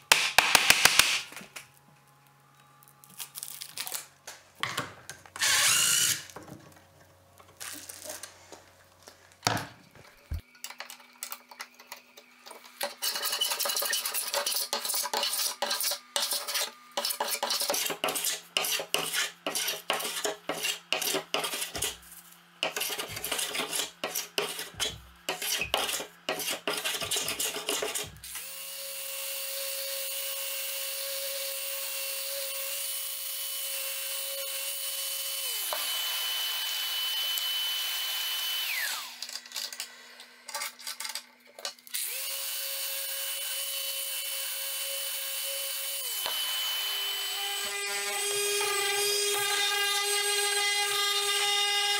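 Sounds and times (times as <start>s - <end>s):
cordless drill whirring: 5.4s - 6.3s, 33.8s - 39.4s, 41.9s - 48.0s
hand plane shaving wood: 13.1s - 22.0s, 22.6s - 28.1s.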